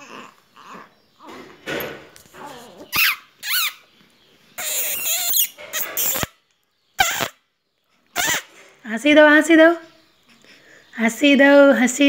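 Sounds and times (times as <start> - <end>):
baby cooing and squeaking: 0.0 - 1.6, 2.3 - 3.9, 4.6 - 6.4, 7.0 - 7.4, 8.2 - 8.5.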